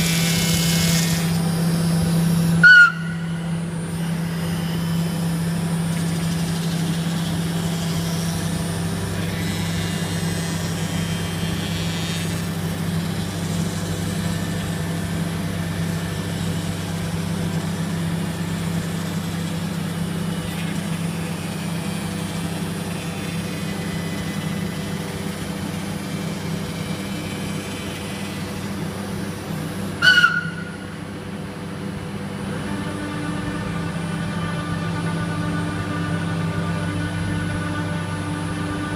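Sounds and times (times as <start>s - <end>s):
router spindle milling foam: 0.0s - 2.7s, 3.3s - 30.0s, 30.8s - 38.9s.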